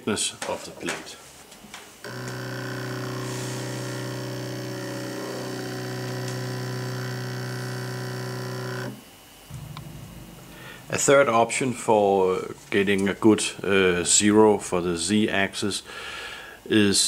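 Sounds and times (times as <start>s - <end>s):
stepper motor whining: 2.0s - 9.1s.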